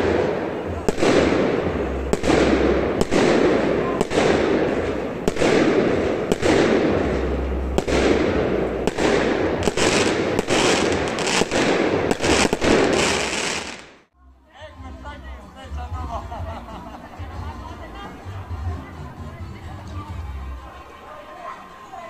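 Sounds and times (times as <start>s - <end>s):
fireworks bangs: 0.0s - 14.1s
continuous firework din: 0.0s - 14.2s.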